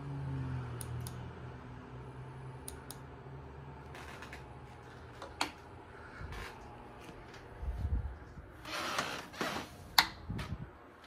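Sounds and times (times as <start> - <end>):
ceiling fan motor hum: 0.0 - 11.0
air rushing from fan blades: 4.7 - 8.6.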